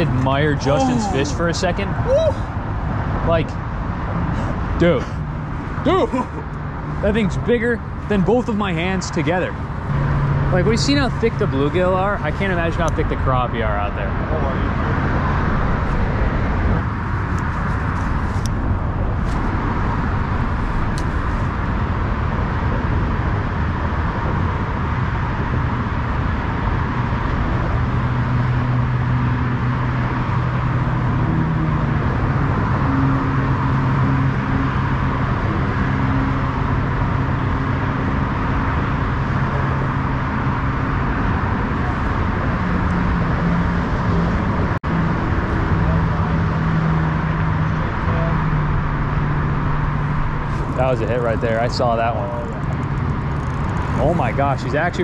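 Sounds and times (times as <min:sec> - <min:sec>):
low motor drone: 0:00.0 - 0:55.0
rushing outdoor background noise: 0:00.0 - 0:55.0.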